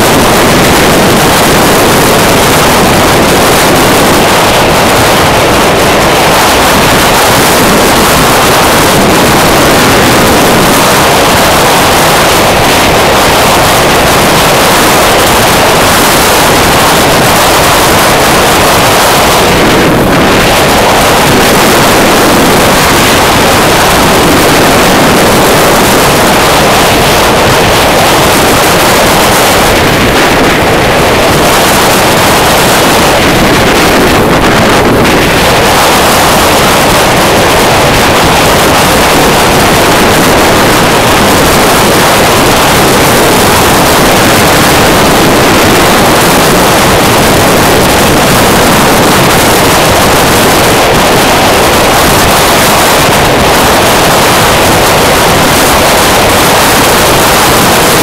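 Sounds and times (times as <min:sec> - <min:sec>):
wind rushing over microphone: 0:00.0 - 0:58.0.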